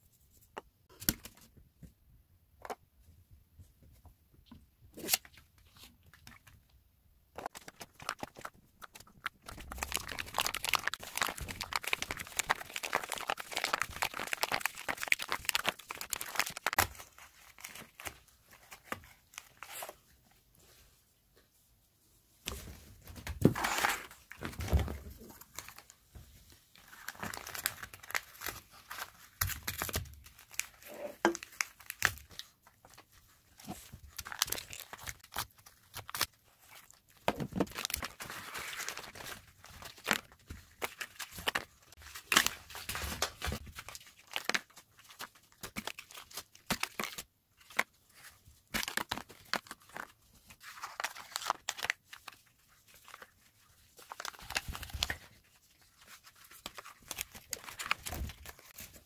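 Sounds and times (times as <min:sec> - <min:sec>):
paper cups crumpling: 0:07.4 - 0:18.0.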